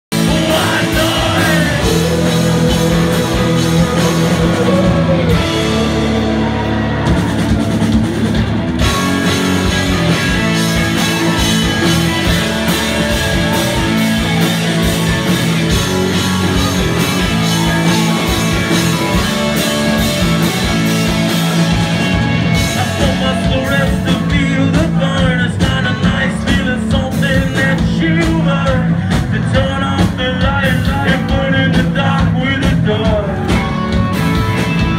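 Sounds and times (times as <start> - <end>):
person singing: 0.1 - 7.2, 22.6 - 34.0
drum kit: 0.1 - 34.9
electric guitars: 0.1 - 34.9.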